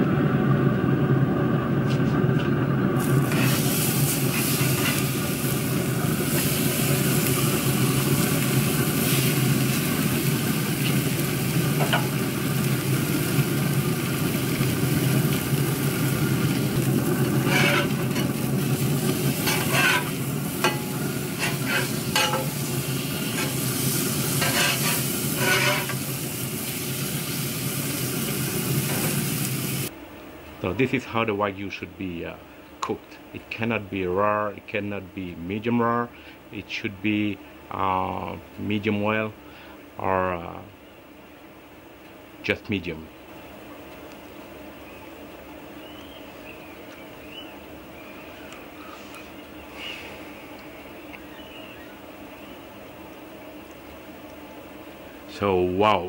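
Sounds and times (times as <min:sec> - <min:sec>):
meat sizzling on a griddle: 0:03.0 - 0:29.9
spatula scraping griddle: 0:03.1 - 0:12.2, 0:15.3 - 0:27.4, 0:28.0 - 0:29.3.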